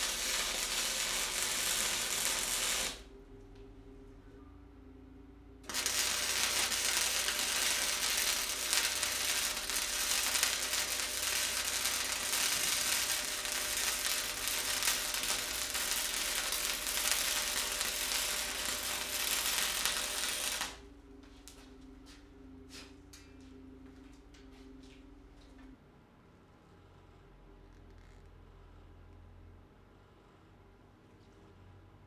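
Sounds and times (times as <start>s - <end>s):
wire welder arc buzzing: 0.0s - 3.1s, 5.6s - 20.8s.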